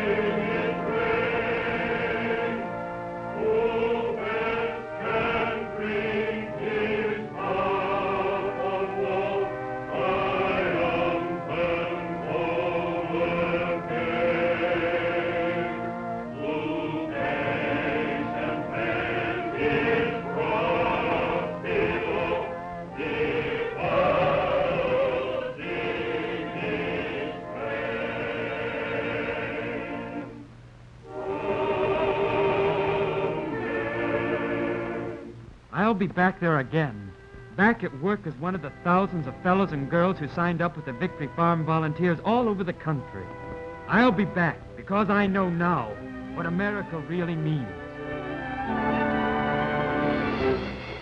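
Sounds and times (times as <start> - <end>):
congregation singing a hymn: 0.0 - 30.4, 31.1 - 35.9.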